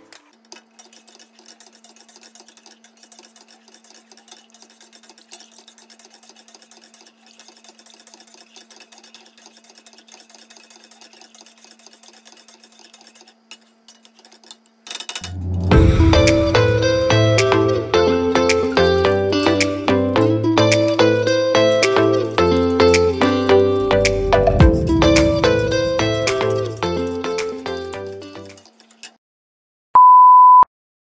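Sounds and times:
spatula scraping a metal pot: 0:00.0 - 0:14.7
steady low hum: 0:15.2 - 0:18.5.

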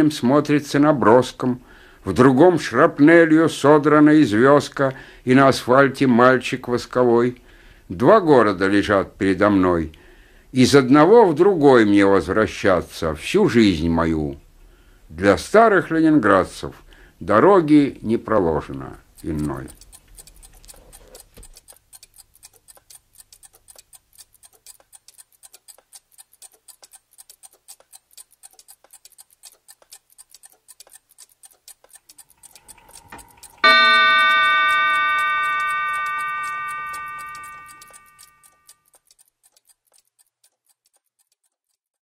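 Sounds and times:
clock ticking: 0:17.3 - 0:42.0
bell-like clock chime: 0:32.7 - 0:38.7.

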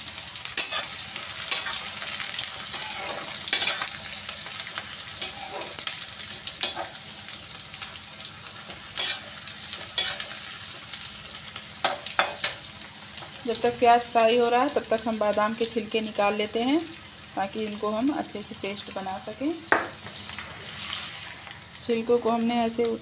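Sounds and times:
onions sizzling in oil: 0:00.0 - 0:23.0
metal skimmer scraping pan: 0:05.2 - 0:05.8.

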